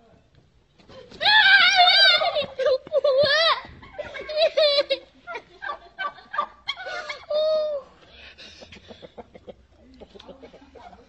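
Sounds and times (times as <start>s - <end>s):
chickens squawking: 3.7s - 7.5s.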